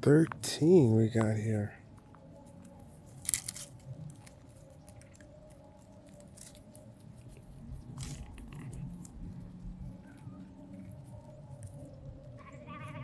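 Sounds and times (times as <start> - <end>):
sheep chewing grass: 0.0 - 13.0.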